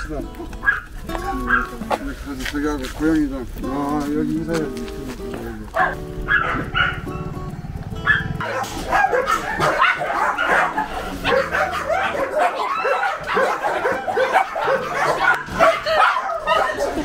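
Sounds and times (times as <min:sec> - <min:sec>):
dogs barking and yelping: 0:00.0 - 0:02.0, 0:05.7 - 0:17.0
dogs whimpering: 0:00.3 - 0:01.9, 0:05.7 - 0:17.0.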